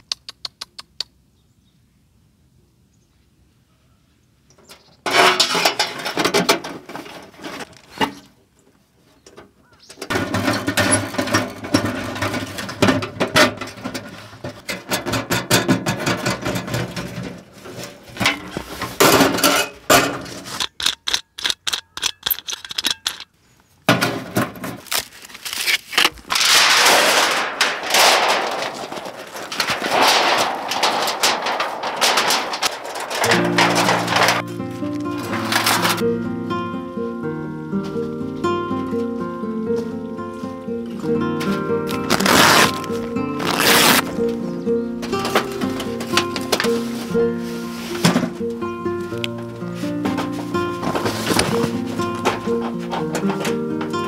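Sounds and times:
quick clicks: 0.0s - 1.2s
metallic knocks and scrapes: 4.6s - 8.3s, 10.0s - 23.3s, 26.0s - 36.0s, 49.7s - 54.0s
stones crunching: 24.1s - 36.0s.

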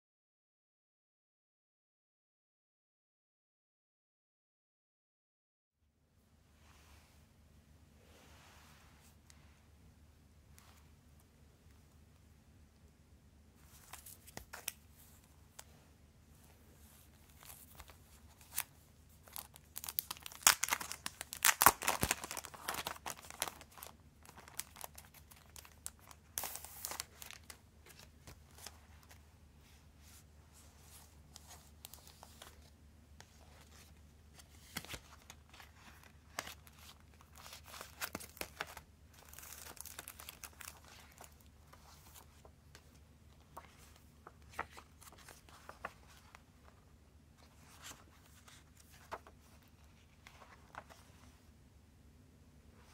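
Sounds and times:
cardboard sleeves rustling: 13.6s - 51.5s
plastic wrapper crinkling: 17.4s - 29.2s, 34.7s - 42.2s.

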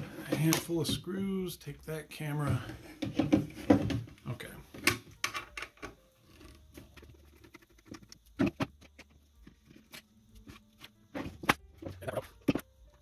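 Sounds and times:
metal cover knocks: 3.0s - 4.2s.

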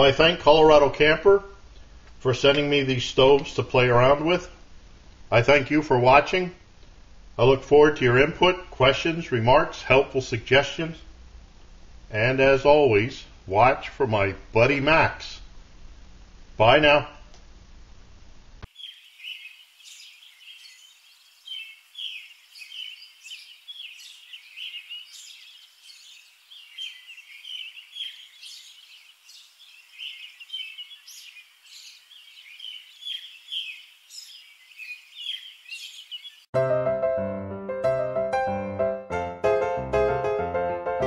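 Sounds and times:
birds chirping: 18.6s - 36.5s
piano music: 36.6s - 41.0s.

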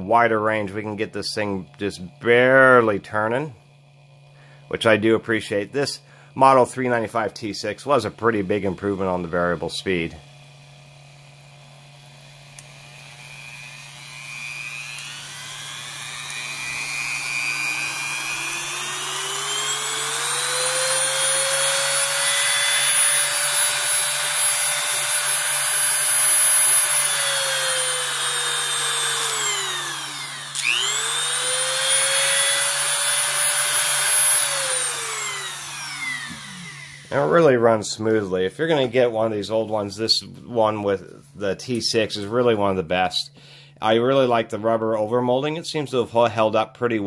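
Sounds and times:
rotary tool motor whine: 8.9s - 37.5s.

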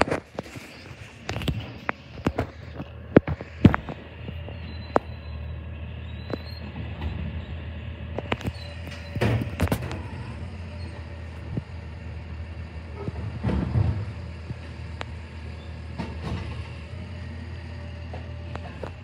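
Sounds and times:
garbage truck idling: 0.0s - 19.0s
trash cart banging: 8.2s - 11.3s, 12.9s - 14.8s, 15.6s - 17.0s.

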